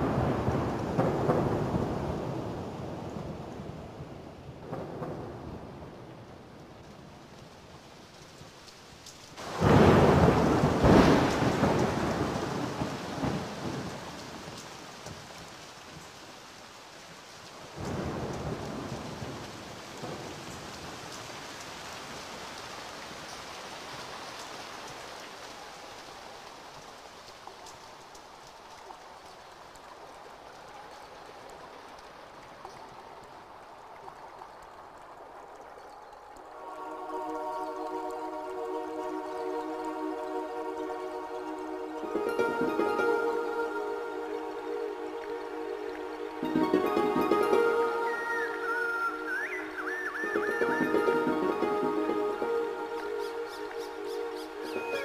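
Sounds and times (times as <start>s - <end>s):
thunder rumbling: 0.0s - 7.3s, 9.4s - 14.6s, 36.6s - 49.2s
steady rain: 0.0s - 55.0s.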